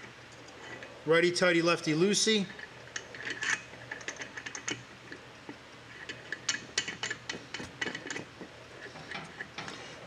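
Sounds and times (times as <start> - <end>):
metal regulator clicking and rubbing: 2.6 - 5.2, 5.9 - 9.8.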